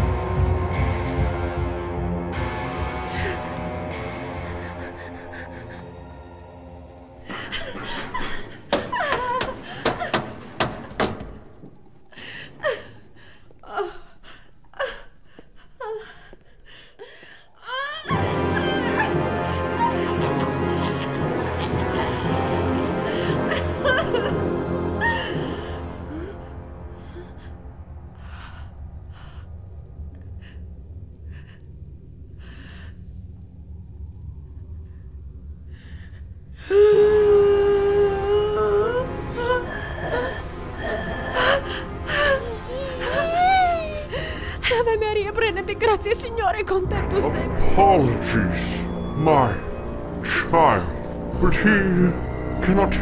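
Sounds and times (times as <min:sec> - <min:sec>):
woman sobbing: 0:04.2 - 0:06.2, 0:07.2 - 0:11.2, 0:12.1 - 0:27.5, 0:36.6 - 0:47.6
sharp knocks: 0:08.7 - 0:12.0.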